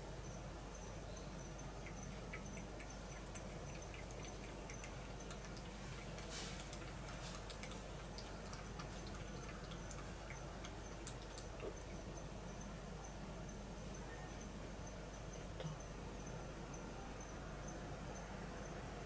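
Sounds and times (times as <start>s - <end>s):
cat lapping water: 1.5s - 12.2s.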